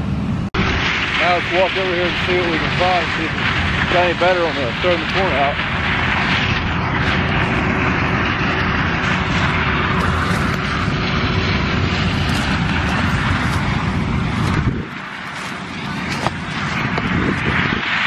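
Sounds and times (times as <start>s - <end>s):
combine harvester droning: 0.0s - 18.0s
wind rumble on microphone: 0.0s - 18.0s.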